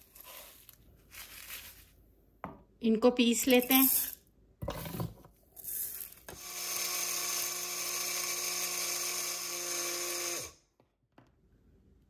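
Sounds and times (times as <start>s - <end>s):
seeds rattling into plastic cup: 3.5s - 4.2s
blender motor whirring: 6.3s - 10.6s.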